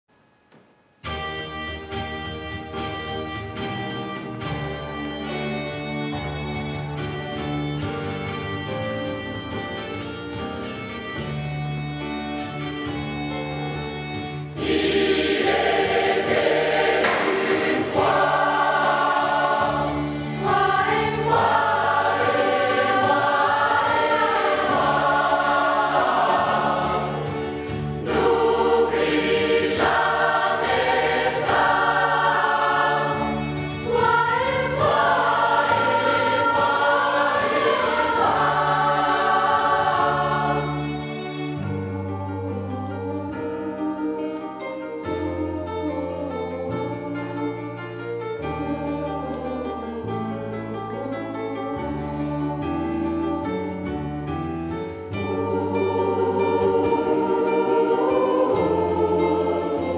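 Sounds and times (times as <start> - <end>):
instrumental accompaniment: 0.4 - 59.9
mixed choir singing: 13.7 - 59.9.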